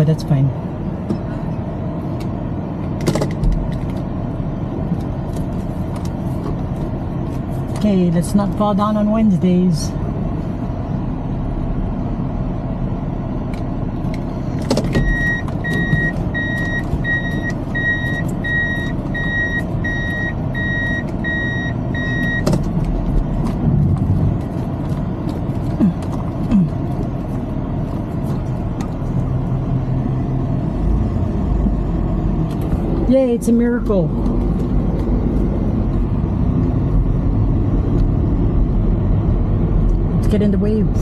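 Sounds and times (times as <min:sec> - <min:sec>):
car road and engine noise: 0:00.0 - 0:41.0
high electronic warning beep: 0:15.0 - 0:22.5.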